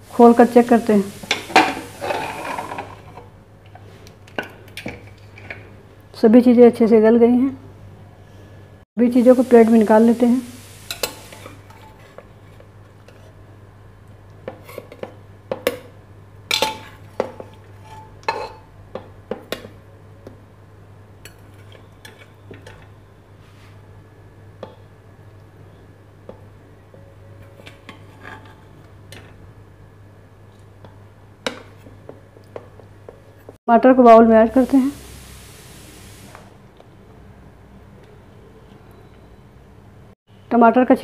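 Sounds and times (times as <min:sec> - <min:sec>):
metal spoon clinking and scraping pot: 0:01.3 - 0:03.2, 0:10.9 - 0:12.2, 0:16.5 - 0:18.7, 0:21.2 - 0:22.9.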